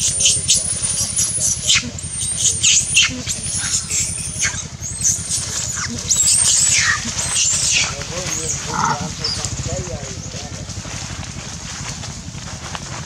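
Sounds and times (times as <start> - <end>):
monkey squealing: 0.0 - 9.6.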